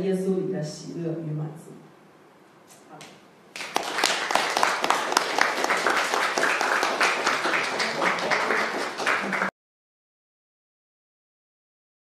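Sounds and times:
congregation applauding: 3.5s - 9.5s.

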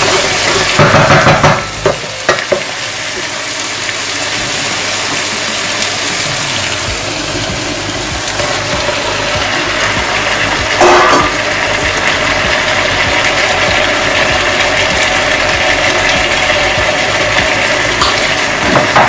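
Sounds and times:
food sizzling in a frying pan: 0.0s - 19.0s
utensil knocking against pan: 0.8s - 2.7s.

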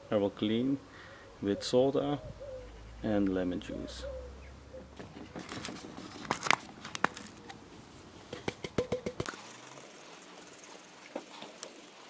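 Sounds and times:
powder hissing into plastic tub: 9.2s - 12.0s.

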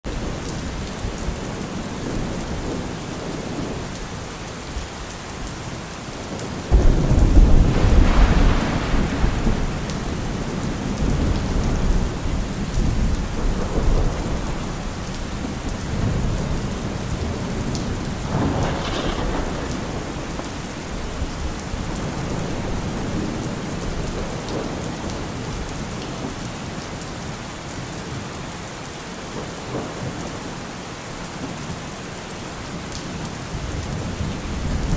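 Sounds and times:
steady rain: 0.0s - 34.9s
rolling thunder: 6.6s - 25.6s.

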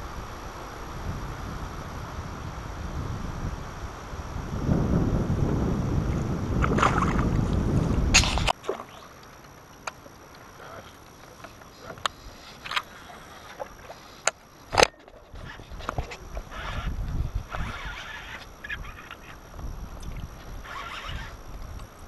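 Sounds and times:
water splashing against boat: 6.6s - 19.4s.

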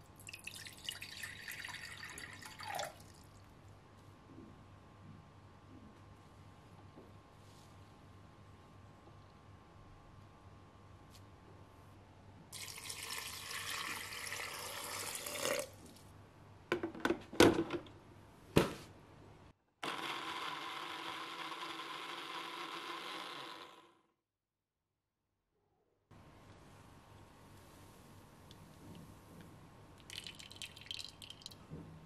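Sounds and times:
water pouring into blender jar: 0.2s - 3.3s, 12.6s - 15.7s, 30.1s - 31.6s
blender running: 19.8s - 24.1s.

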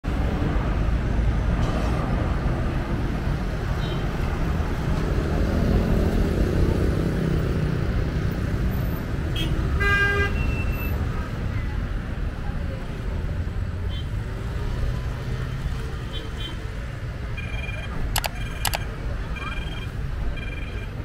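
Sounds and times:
motor traffic rumble: 0.1s - 10.2s, 10.9s - 21.0s.

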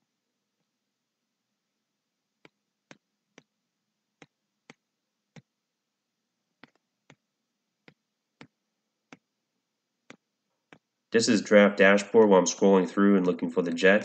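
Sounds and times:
computer mouse clicking: 6.6s - 7.2s.

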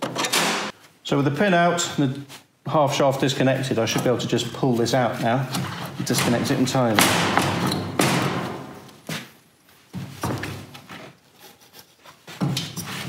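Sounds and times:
metal scraping and clunking: 3.4s - 9.2s.

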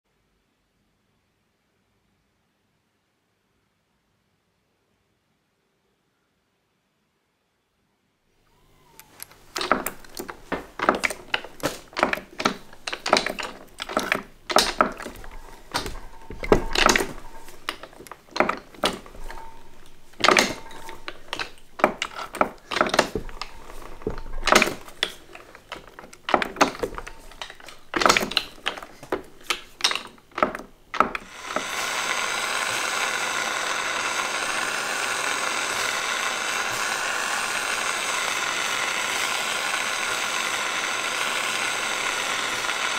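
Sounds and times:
rolling mill clicking and clunking: 9.2s - 42.9s
gas torch flame hissing: 31.2s - 42.9s.

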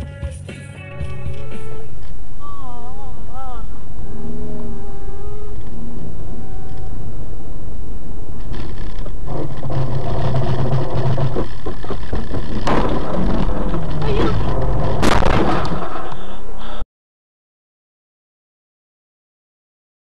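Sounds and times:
vehicle engine and road noise: 5.5s - 16.2s
sharp bang: 9.3s - 16.1s.

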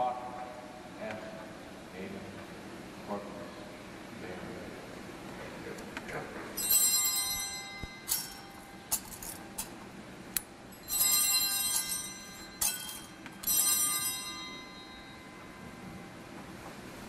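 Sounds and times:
altar bells ringing: 6.6s - 9.7s, 10.7s - 16.2s.

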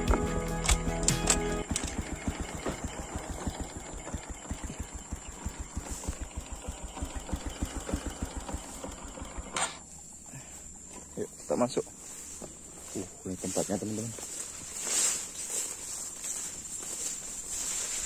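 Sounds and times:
small motorcycle engine puttering: 0.0s - 10.0s.

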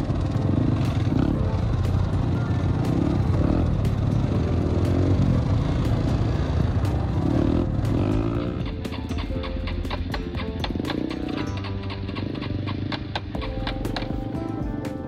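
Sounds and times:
atv engine running: 0.0s - 15.0s
rattling and clatter: 3.8s - 14.4s.

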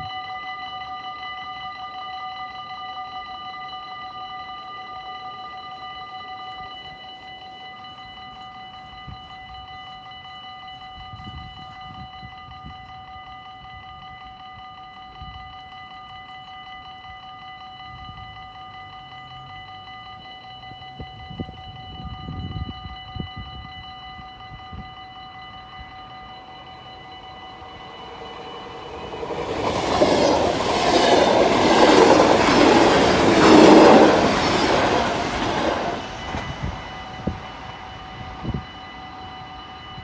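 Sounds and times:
level-crossing warning bell: 0.0s - 40.0s.

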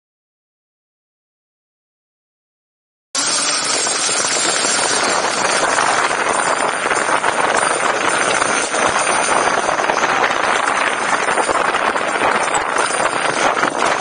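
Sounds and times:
tyres rushing on rough road: 3.2s - 14.0s.

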